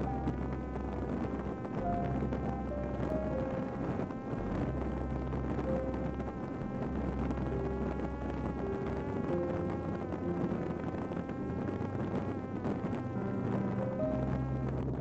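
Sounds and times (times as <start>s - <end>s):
drone motor whining: 0.0s - 15.0s.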